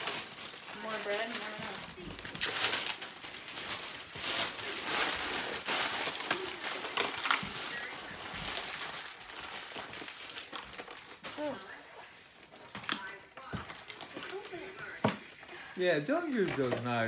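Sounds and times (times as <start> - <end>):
cardboard box and paper rustling: 0.0 - 11.6.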